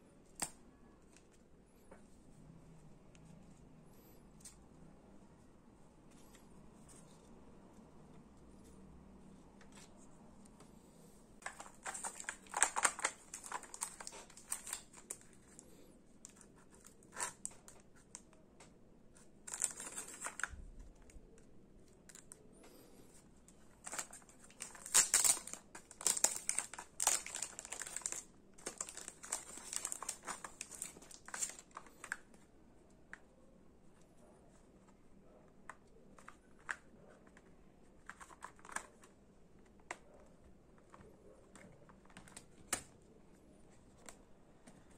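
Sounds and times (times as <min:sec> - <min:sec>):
packaging crinkling and tearing: 0:11.4 - 0:15.7, 0:16.3 - 0:18.3, 0:19.4 - 0:21.2, 0:23.8 - 0:32.3, 0:38.0 - 0:39.2.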